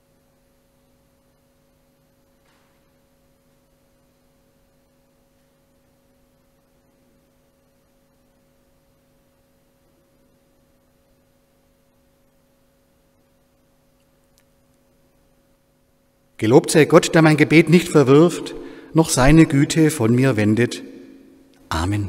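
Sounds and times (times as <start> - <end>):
faint electrical hum: 0.0 - 22.0.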